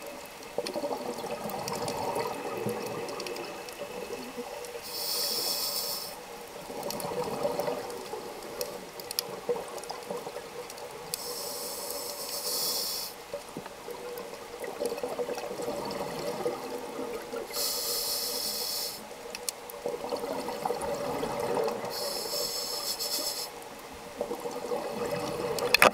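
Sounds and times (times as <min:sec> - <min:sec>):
hissing regulator inhalations: 0:04.8 - 0:06.3, 0:11.2 - 0:13.2, 0:17.5 - 0:19.1, 0:21.9 - 0:23.7.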